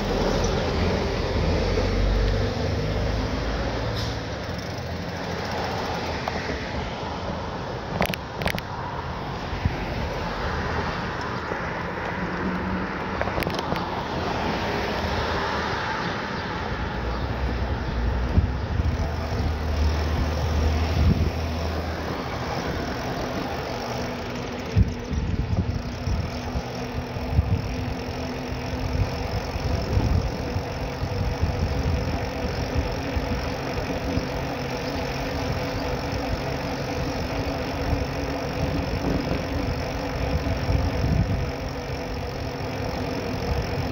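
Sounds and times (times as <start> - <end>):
cars passing: 0.0 - 43.9
low engine hum: 0.0 - 43.9.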